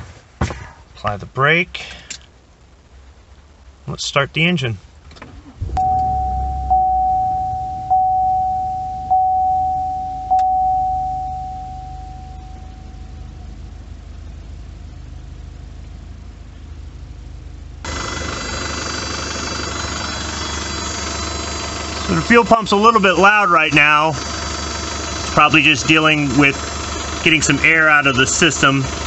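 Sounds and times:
fuel pump whine: 0:05.2 - 0:29.0
diesel engine idling: 0:05.3 - 0:29.0
warning chime dinging: 0:05.6 - 0:13.4.

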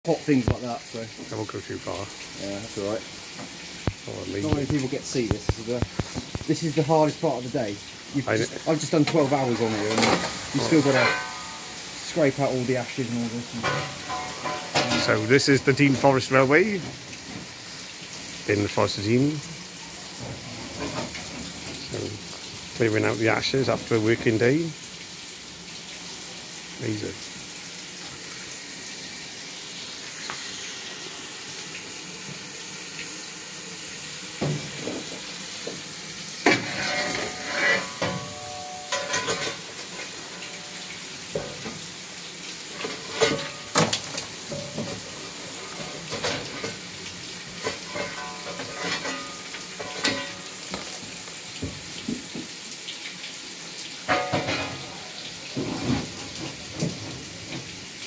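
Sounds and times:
embers hissing and sizzling: 0:00.1 - 0:58.0
metal fire irons clanking: 0:02.6 - 0:19.3, 0:20.0 - 0:24.4, 0:34.4 - 0:42.0, 0:42.6 - 0:51.2, 0:54.1 - 0:57.8.

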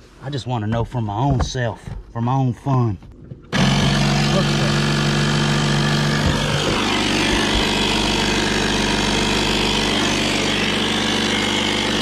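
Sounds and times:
air compressor motor hum: 0:03.5 - 0:12.0.

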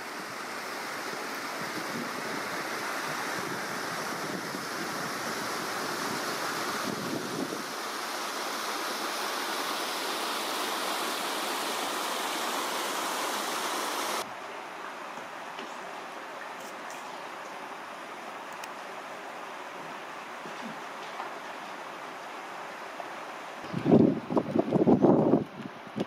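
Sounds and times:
river rushing: 0:00.0 - 0:23.7
wind buffeting microphone: 0:01.5 - 0:07.7, 0:23.6 - 0:26.0.

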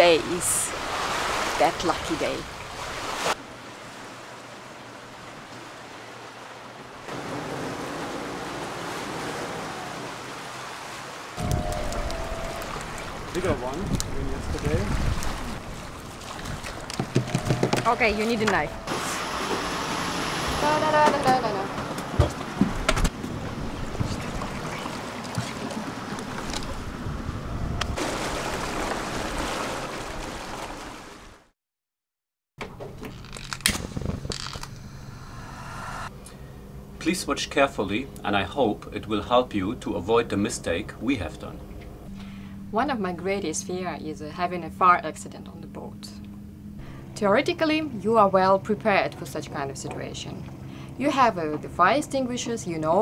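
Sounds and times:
sea water rushing past hulls: 0:00.0 - 0:31.6
wind on microphone: 0:11.4 - 0:18.9, 0:22.2 - 0:28.0, 0:33.6 - 0:36.1.

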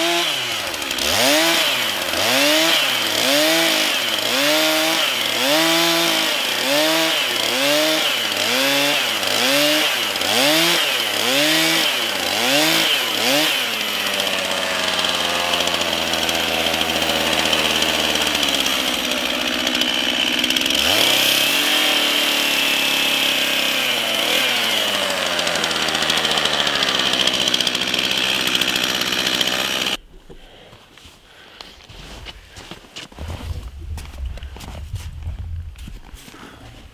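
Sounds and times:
chainsaw cutting a log: 0:00.0 - 0:30.0.

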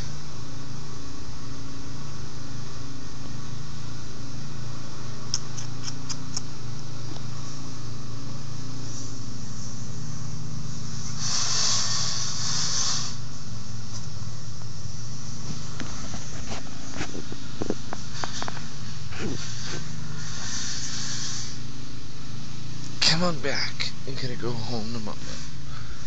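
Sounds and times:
motor humming: 0:00.0 - 0:26.0
burst of hiss: 0:10.7 - 0:13.4, 0:18.1 - 0:21.8.

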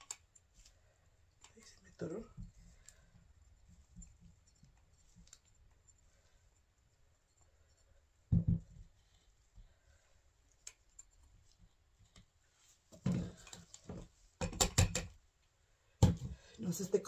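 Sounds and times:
thump: 0:08.3 - 0:08.7.

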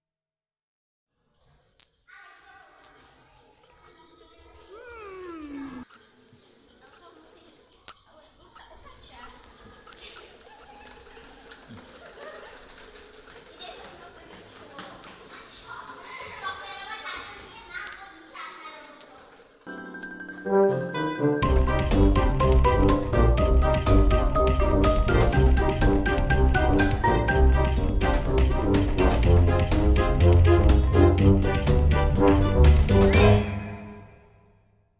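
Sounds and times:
toy wheels squeaking: 0:01.4 - 0:20.8
children's voices: 0:02.1 - 0:05.9, 0:06.8 - 0:19.4.

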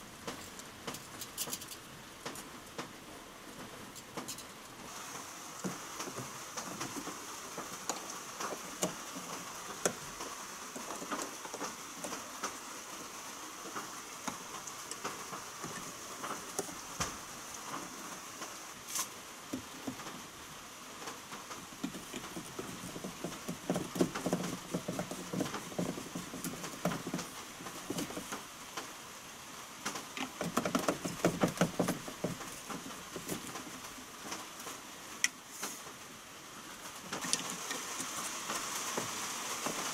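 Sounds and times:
faint high hiss: 0:00.0 - 0:22.7, 0:32.0 - 0:39.9
plastic pipe parts clicking and rubbing: 0:00.2 - 0:02.9, 0:21.4 - 0:28.9, 0:29.8 - 0:34.5.

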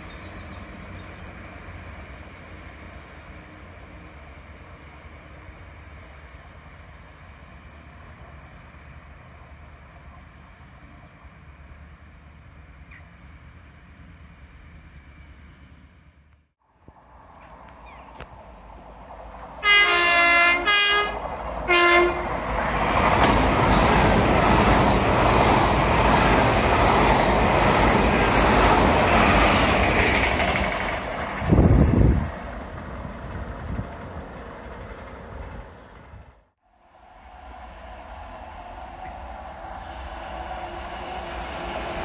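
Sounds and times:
train passing: 0:00.0 - 0:42.0
train horn blasts: 0:19.6 - 0:22.4.

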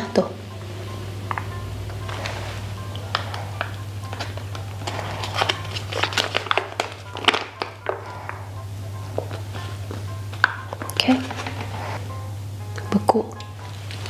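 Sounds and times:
soft background music: 0:00.0 - 0:14.0
foil sachets crinkling: 0:02.1 - 0:09.8.

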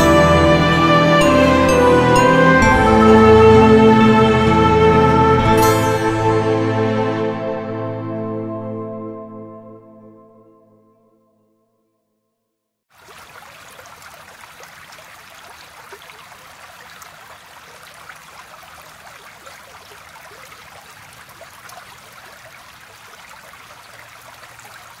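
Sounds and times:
flowing water: 0:12.9 - 0:25.0.

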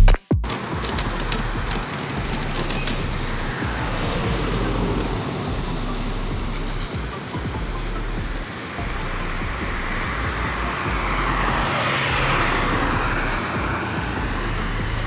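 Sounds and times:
light clicks: 0:00.4 - 0:03.2
car road noise on highway: 0:00.4 - 0:15.0.

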